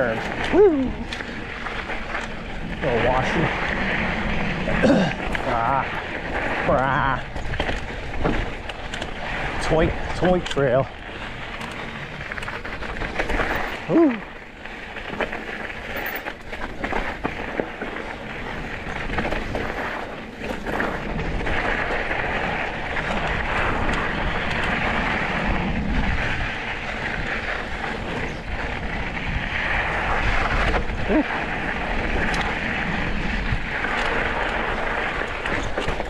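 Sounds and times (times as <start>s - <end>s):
wind on microphone: 0.0s - 10.4s, 20.6s - 36.0s
tyres crunching on dirt: 0.0s - 36.0s
bike knocking over rocks: 4.7s - 29.0s.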